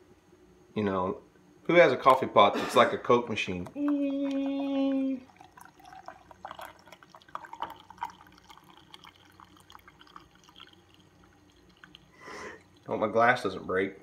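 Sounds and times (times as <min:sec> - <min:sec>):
coffee maker hum: 0:00.8 - 0:14.0
coffee trickling into glass: 0:04.2 - 0:13.6.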